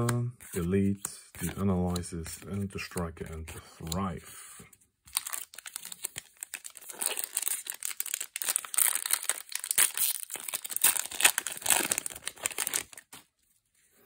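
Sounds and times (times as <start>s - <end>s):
foil wrapper crinkling and tearing: 5.1s - 13.2s.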